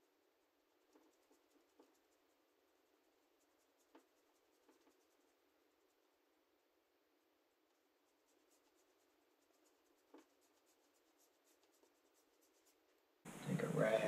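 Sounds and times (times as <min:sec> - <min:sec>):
paintbrush strokes on canvas: 0:00.0 - 0:06.2, 0:07.7 - 0:14.0.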